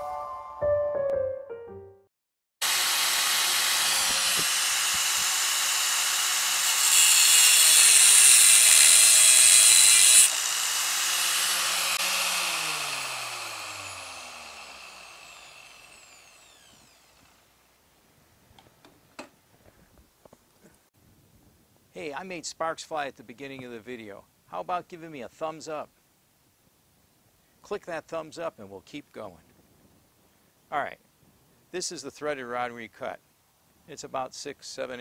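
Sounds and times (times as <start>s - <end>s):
angle grinder running: 2.6s - 17.6s
grinder cutting steel rod: 2.6s - 17.6s.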